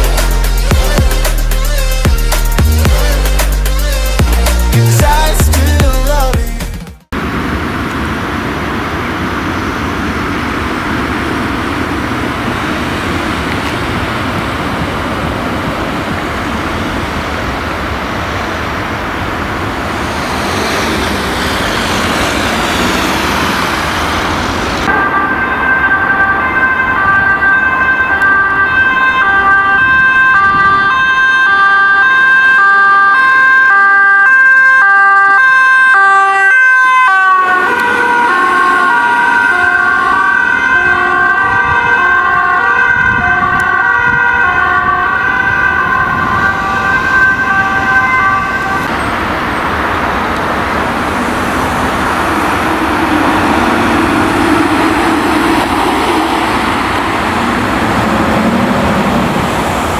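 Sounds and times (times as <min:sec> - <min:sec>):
road traffic: 0:00.0 - 0:59.9
vehicle passing: 0:07.2 - 0:24.9, 0:46.1 - 0:59.9
two-tone siren: 0:19.1 - 0:49.8, 0:50.9 - 0:59.9.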